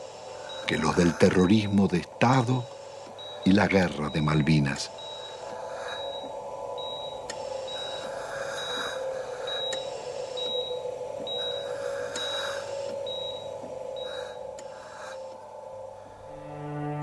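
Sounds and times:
patient monitor beeping: 0.0s - 15.9s
machine hum: 0.0s - 17.0s
long hisses: 4.9s - 13.1s, 13.8s - 16.8s.

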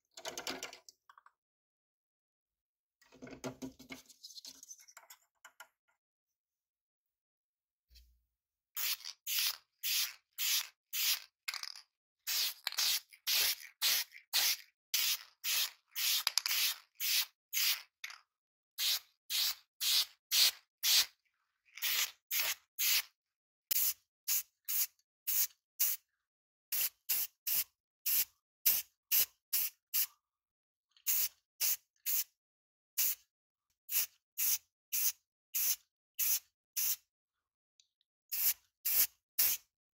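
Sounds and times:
spray paint hissing bursts: 8.8s - 11.3s, 12.3s - 17.8s, 18.8s - 21.1s, 21.8s - 23.1s, 33.9s - 37.0s, 38.3s - 39.6s.

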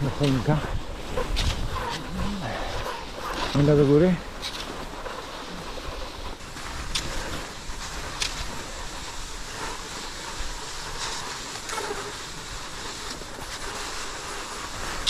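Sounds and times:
sharp ski clicks: 0.0s - 15.0s
skis swishing on snow: 0.0s - 15.0s.

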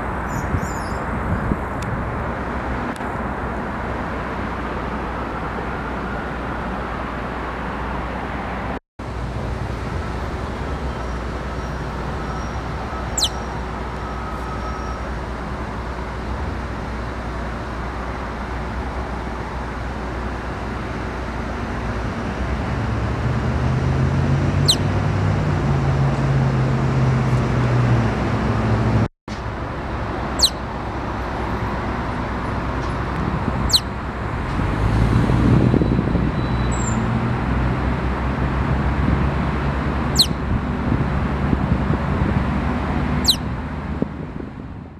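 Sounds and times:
road traffic noise: 0.0s - 44.9s
ground squirrel squeaks: 12.3s - 13.6s, 24.6s - 24.8s, 30.4s - 30.6s, 33.6s - 33.9s, 40.2s - 40.4s, 43.2s - 43.5s.

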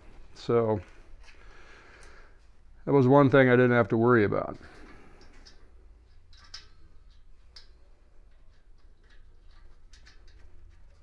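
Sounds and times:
light metal clicks and taps: 5.2s - 10.9s.

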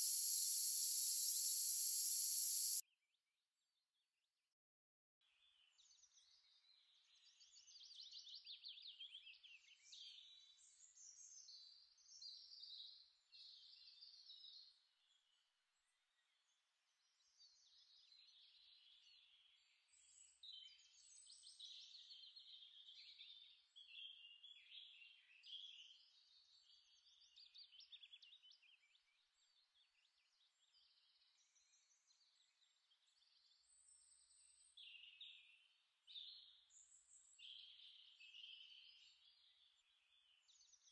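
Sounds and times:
birds chirping and twittering: 0.0s - 2.8s.

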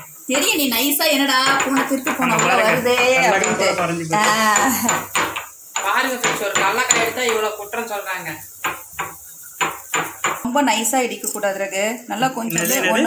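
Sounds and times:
stone pestle knocking in mortar: 1.4s - 7.6s, 8.6s - 10.5s.

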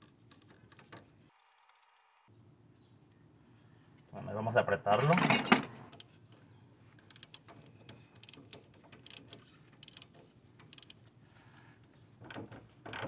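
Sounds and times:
ratchet wrench clicking: 10.7s - 11.0s.

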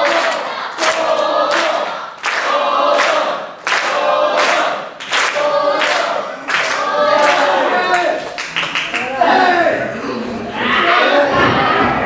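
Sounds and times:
choral singing: 0.0s - 8.2s.

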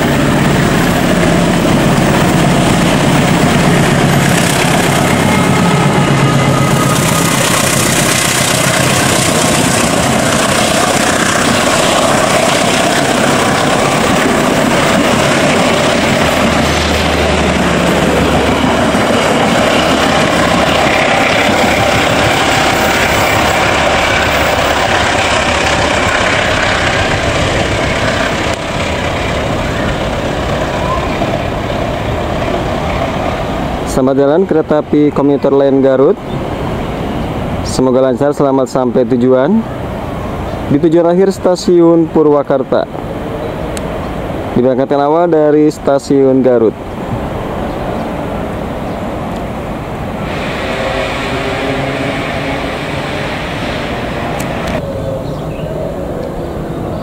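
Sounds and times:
locomotive engine running: 0.0s - 34.0s, 46.8s - 54.9s
train coaches rumbling on rails: 0.0s - 57.0s.

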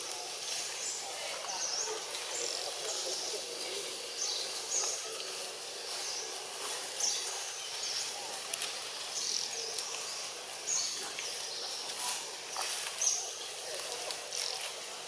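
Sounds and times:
faint clicks: 8.4s - 8.8s.

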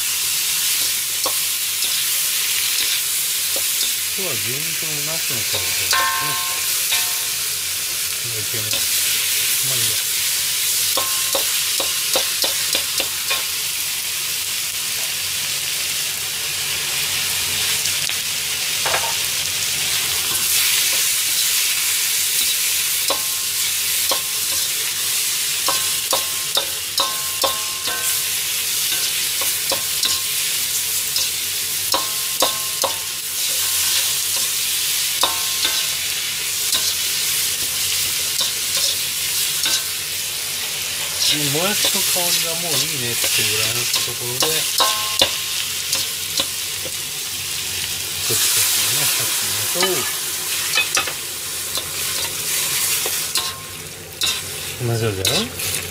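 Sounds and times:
vegetables sizzling in a wok: 0.0s - 55.9s
metal ladle clanking on a wok: 5.5s - 7.4s, 11.0s - 13.5s, 23.1s - 23.4s, 25.7s - 28.3s, 31.9s - 33.1s, 35.2s - 36.1s, 36.7s - 37.0s, 38.4s - 39.0s, 43.2s - 47.0s, 49.8s - 52.4s, 53.0s - 54.5s.

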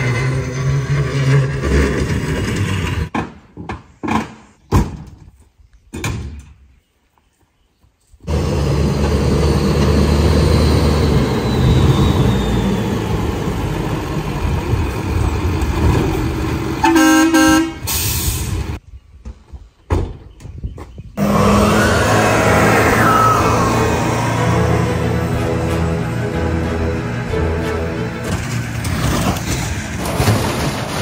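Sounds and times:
choppy vehicle noise: 0.0s - 3.1s, 8.2s - 17.9s, 21.2s - 31.0s
truck engine running: 8.3s - 16.8s, 21.2s - 31.0s.

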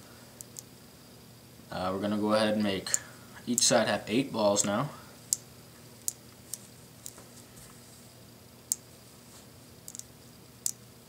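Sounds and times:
magnet balls clicking: 0.4s - 0.7s, 5.3s - 7.2s, 9.8s - 10.8s.

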